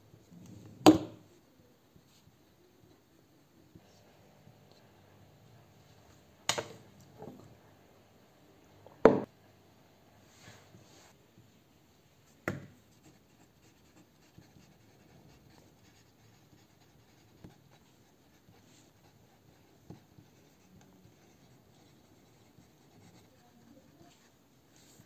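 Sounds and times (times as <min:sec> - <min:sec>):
pen scratching on paper: 0:12.9 - 0:25.0.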